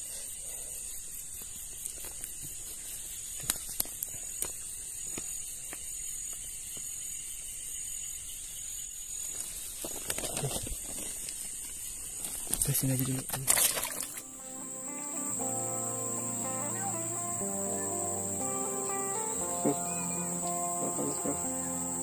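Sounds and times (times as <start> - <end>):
insects chirring: 0.0 - 22.0
leaves and undergrowth rustling: 9.1 - 15.4.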